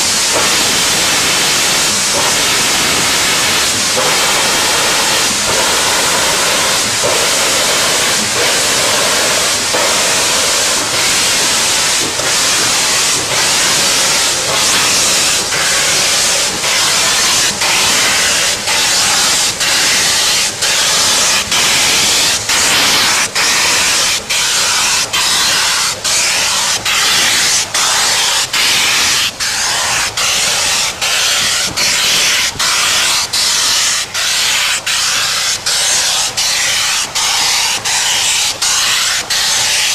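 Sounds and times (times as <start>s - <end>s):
steam locomotive hissing steam: 0.0s - 39.9s.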